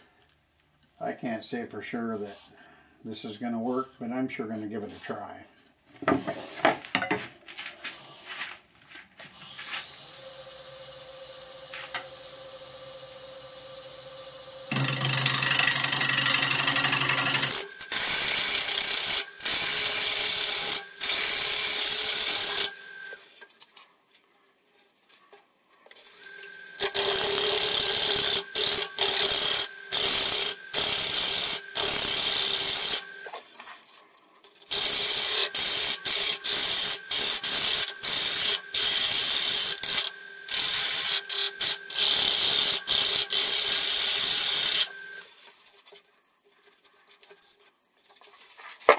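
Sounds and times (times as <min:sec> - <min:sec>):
wood lathe humming: 0:09.4 - 0:23.4, 0:26.1 - 0:33.5, 0:34.7 - 0:45.4.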